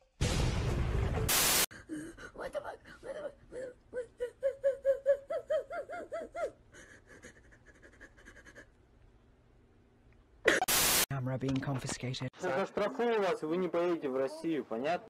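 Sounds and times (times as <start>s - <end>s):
loud burst of noise: 1.2s - 1.7s
girl sobbing: 1.7s - 8.8s.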